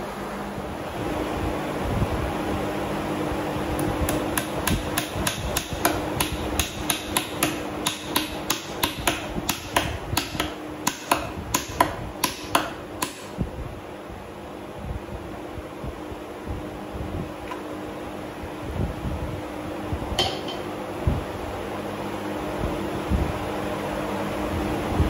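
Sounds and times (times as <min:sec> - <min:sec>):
hammer striking steel on anvil: 0:04.1 - 0:13.4, 0:20.2 - 0:20.7.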